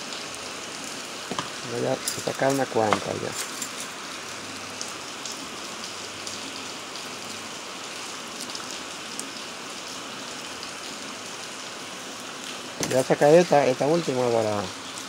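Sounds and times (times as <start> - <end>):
steady rain-like hiss: 0.0 - 15.0.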